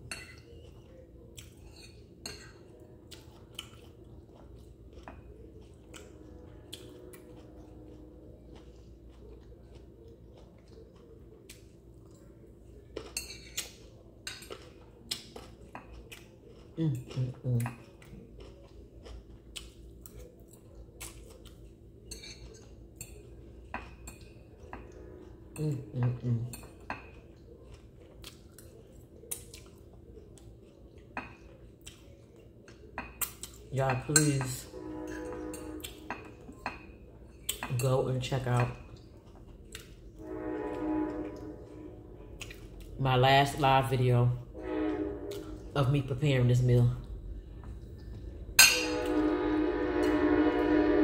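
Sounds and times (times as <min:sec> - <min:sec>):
quiet chewing: 0:00.0 - 0:33.7, 0:38.8 - 0:41.5, 0:42.1 - 0:43.0, 0:44.8 - 0:45.7, 0:47.0 - 0:48.6
cutlery clinking on ceramic plate: 0:13.0 - 0:14.8, 0:22.1 - 0:25.0, 0:33.0 - 0:37.9, 0:48.6 - 0:49.1
fork scraping ceramic plate: 0:34.2 - 0:36.9.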